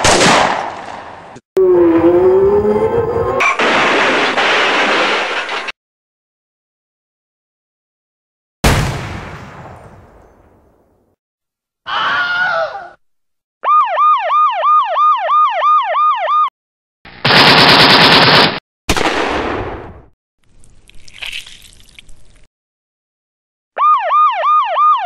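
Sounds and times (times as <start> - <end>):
warbling electronic tone: 1.6 - 3.4
weapon blast: 3.4 - 5.4, 8.6 - 10.1
rapid gunfire bursts: 17.2 - 19.2.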